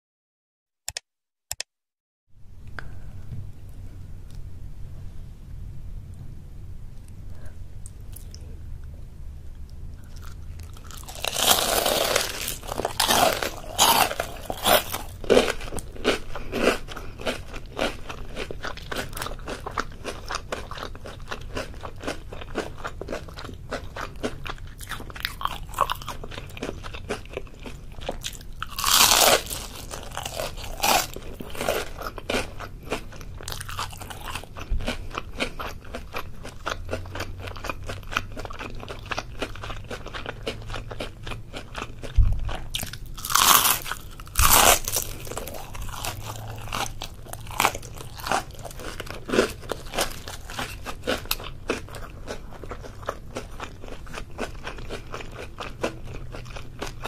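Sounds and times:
crackly chewing: 9.5s - 57.0s
crunchy food bites: 9.6s - 57.0s.

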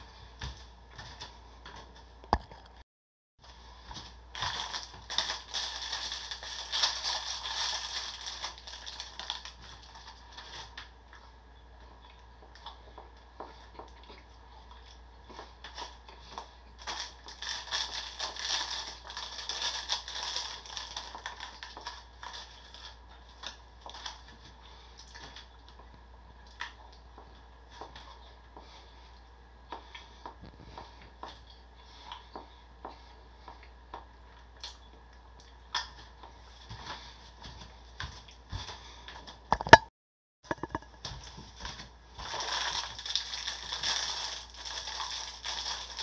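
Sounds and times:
plastic wrapper crinkling: 4.3s - 10.8s, 16.8s - 24.3s, 42.2s - 46.0s.

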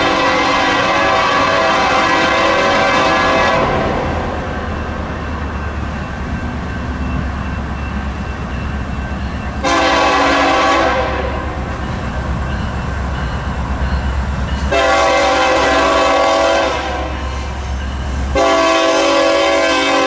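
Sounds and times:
locomotive air horn blasts: 0.0s - 4.1s, 9.6s - 11.6s, 14.7s - 17.6s, 18.3s - 20.0s
low rumble of passing train: 0.0s - 20.0s.

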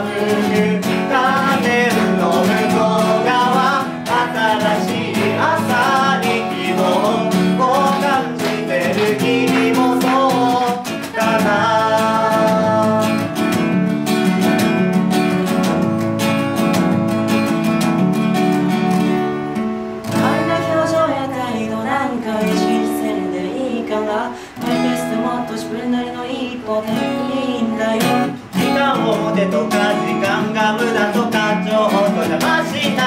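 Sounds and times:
woman singing: 0.0s - 13.3s, 20.1s - 33.0s
acoustic guitars playing pop song: 0.0s - 33.0s.

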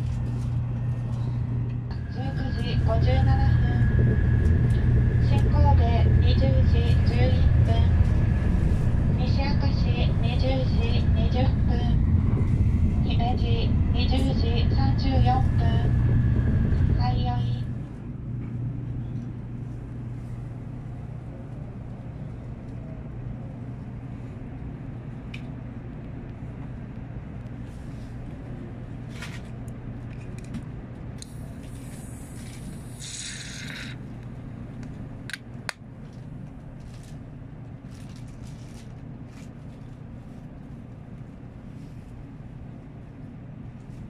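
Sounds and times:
steady low hum: 0.0s - 44.0s
can hissing: 32.9s - 33.9s.

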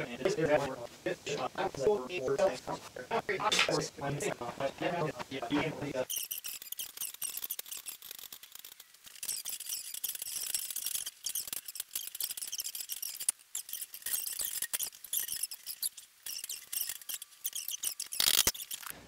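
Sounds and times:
paint roller crackling: 4.2s - 19.0s.

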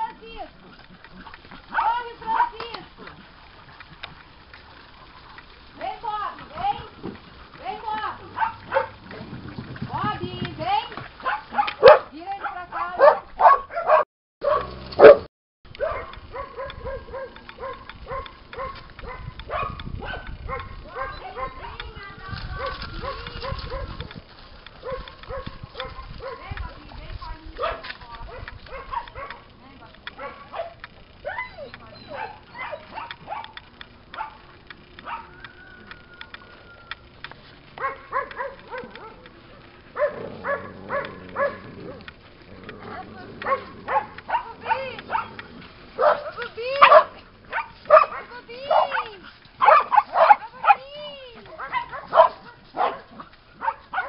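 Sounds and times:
dogs barking: 1.2s - 2.7s, 8.0s - 9.1s, 11.2s - 21.9s, 22.5s - 24.0s, 24.8s - 26.6s, 27.6s - 36.3s, 37.7s - 54.0s.

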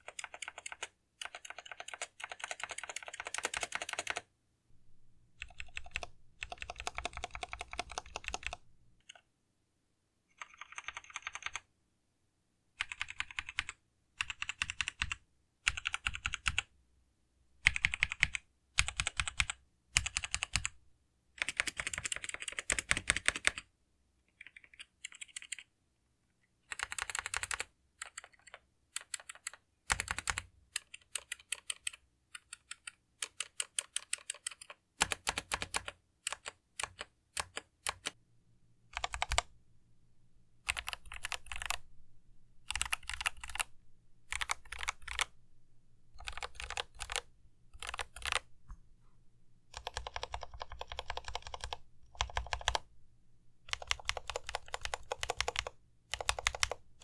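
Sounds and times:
mechanical keyboard typing: 0.0s - 4.2s, 5.4s - 9.2s, 10.3s - 11.7s, 12.8s - 16.7s, 17.6s - 20.7s, 21.4s - 23.6s, 24.3s - 25.7s, 26.7s - 38.2s, 38.9s - 39.5s, 40.7s - 41.8s, 42.6s - 43.7s, 44.3s - 45.4s, 46.2s - 48.5s, 49.7s - 52.9s, 53.7s - 56.8s.

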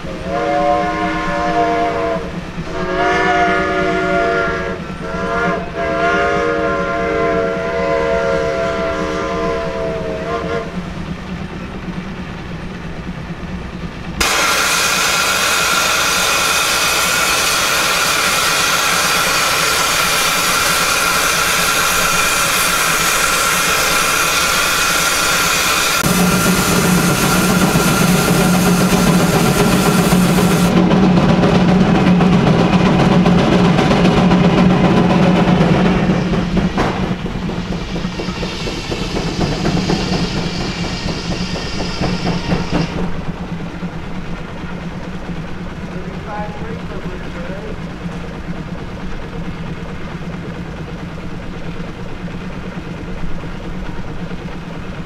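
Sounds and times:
steam hissing: 14.2s - 30.8s, 34.3s - 44.8s.

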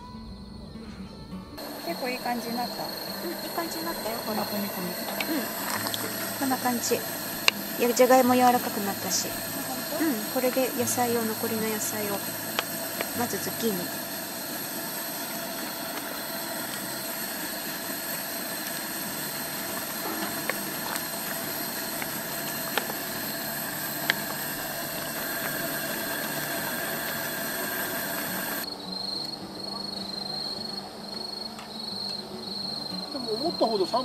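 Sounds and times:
crickets trilling: 0.0s - 34.0s
camp stove roaring: 1.6s - 29.3s, 30.1s - 34.0s
utensils clicking: 3.1s - 28.6s.

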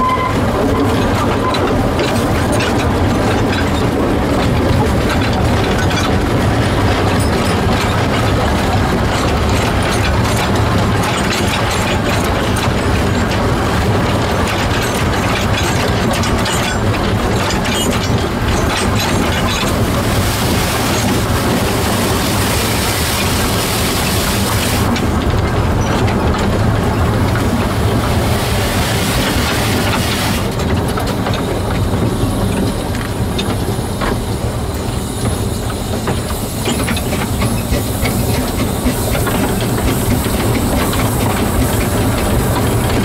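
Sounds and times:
steam locomotive rumbling: 0.0s - 43.0s
steam hiss: 28.0s - 30.5s, 34.7s - 43.0s.

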